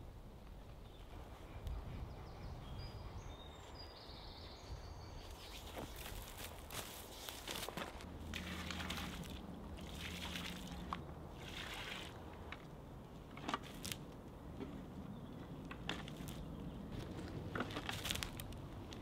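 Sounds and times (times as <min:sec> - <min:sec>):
footsteps in dry leaves: 0:05.3 - 0:08.1, 0:16.2 - 0:18.5
water splashing onto soil: 0:06.0 - 0:12.3.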